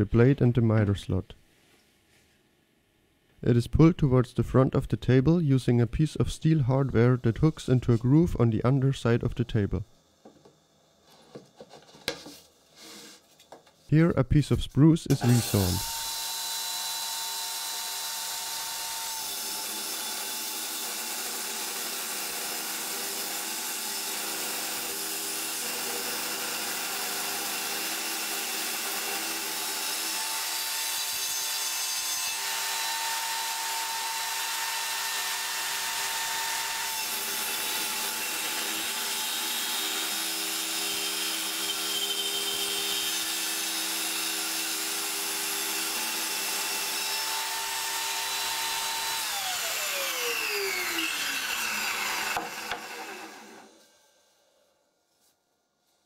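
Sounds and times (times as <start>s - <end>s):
table saw cutting wood: 15.1s - 54.2s.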